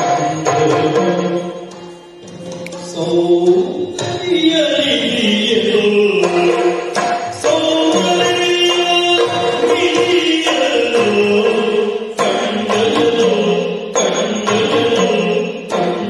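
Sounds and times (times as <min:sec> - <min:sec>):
person singing ornamented song: 0:00.0 - 0:16.0
sharp drum strokes: 0:00.0 - 0:16.0.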